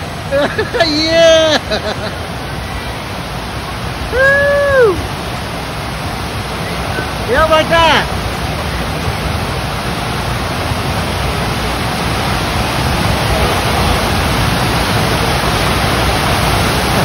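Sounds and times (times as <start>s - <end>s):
rushing water roar: 0.0s - 17.0s.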